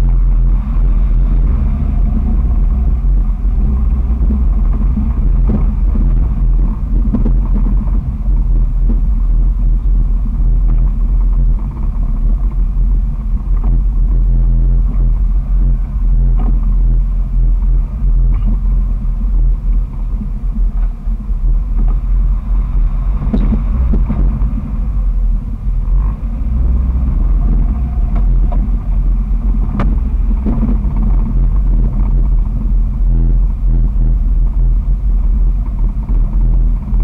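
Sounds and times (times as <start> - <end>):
loud engine drone: 0.0 - 37.0.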